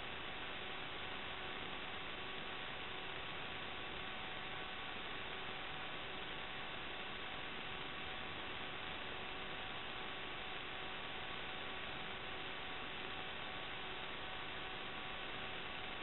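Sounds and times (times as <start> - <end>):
electrical hiss with hum: 0.0 - 16.0.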